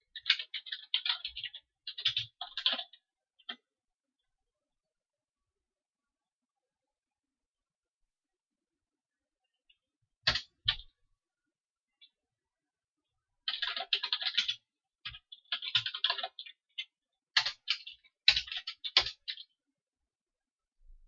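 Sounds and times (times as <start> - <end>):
computer keyboard typing: 0.1 - 3.6, 10.3 - 10.9, 13.4 - 19.6.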